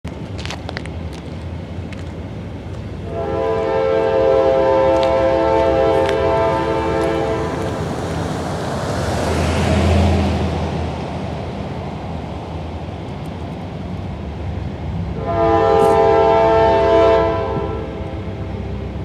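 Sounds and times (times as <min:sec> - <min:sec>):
locomotive air horn: 0:03.0 - 0:07.7, 0:15.1 - 0:18.2
pickup truck driving past: 0:04.7 - 0:12.8.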